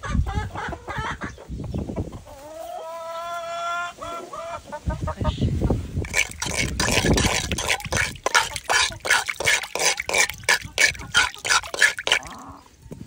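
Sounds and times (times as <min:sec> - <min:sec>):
chickens drinking water: 0:06.0 - 0:13.0.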